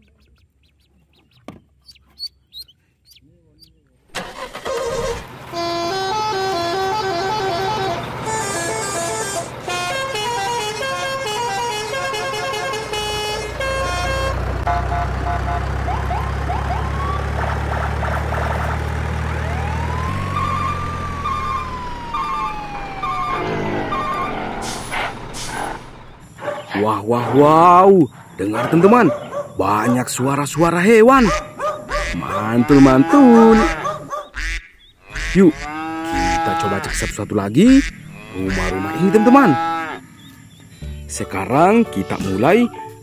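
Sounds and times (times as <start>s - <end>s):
low engine-like drone: 4.8s - 26.4s
siren-like whoops: 15.9s - 17.3s, 19.4s - 24.8s.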